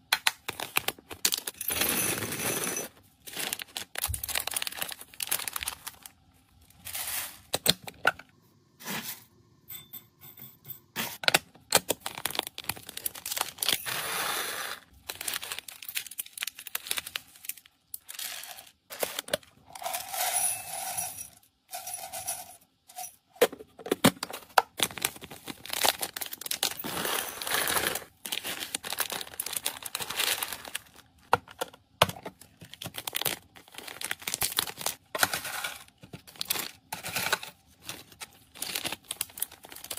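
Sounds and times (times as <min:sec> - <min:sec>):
plastic pouches crinkling: 0:00.2 - 0:08.0, 0:11.6 - 0:20.1, 0:24.2 - 0:39.9.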